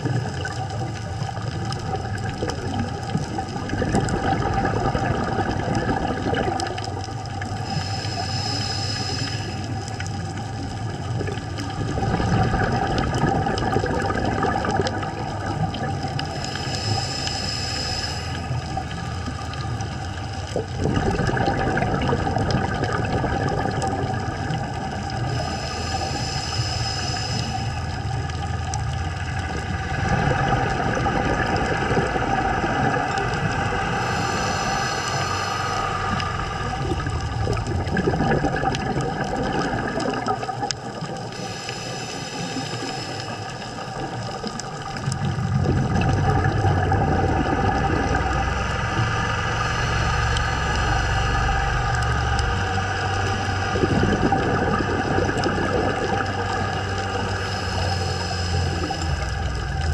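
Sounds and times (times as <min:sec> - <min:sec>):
exhaled bubbles burbling: 0:00.0 - 0:59.9
regulator hissing inhale: 0:07.6 - 0:10.3, 0:16.2 - 0:20.4, 0:24.6 - 0:28.5, 0:32.0 - 0:38.0, 0:41.0 - 0:45.3, 0:48.4 - 0:59.9.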